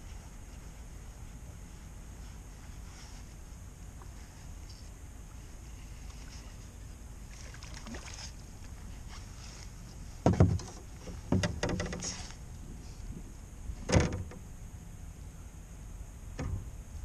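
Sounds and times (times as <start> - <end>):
low steady rumble: 0.0 - 17.0
dull thumps on boat: 10.2 - 12.2, 13.8 - 14.4, 16.4 - 16.8.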